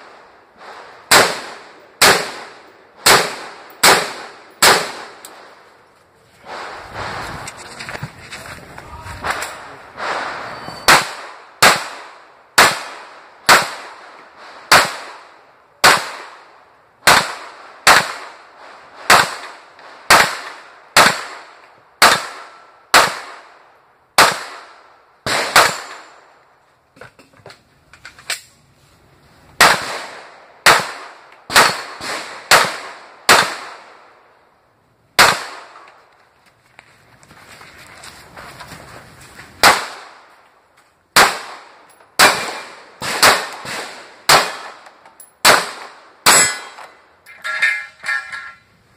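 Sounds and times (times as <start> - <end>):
gunshots with ringing echo: 1.0 - 5.2, 10.0 - 13.9, 17.0 - 18.4, 20.1 - 23.5, 24.2 - 26.2, 29.6 - 34.0, 35.2 - 35.9, 41.2 - 44.8, 45.4 - 46.9.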